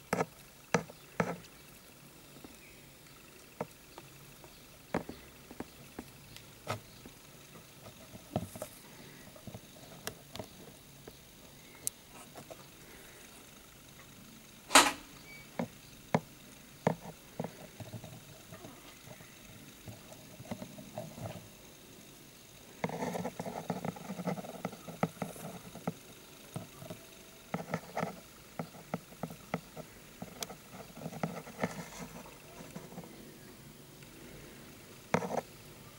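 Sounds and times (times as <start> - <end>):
scraping and rustling in substrate: 29.6 - 33.2.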